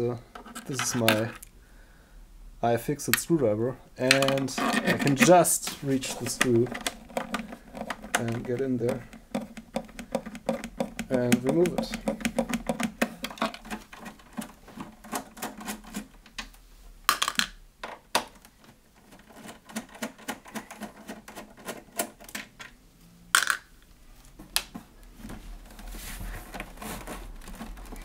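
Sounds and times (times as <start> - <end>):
loud plastic clacks: 6.1 - 16.5
screwdriver clicking against plastic: 6.4 - 14.5.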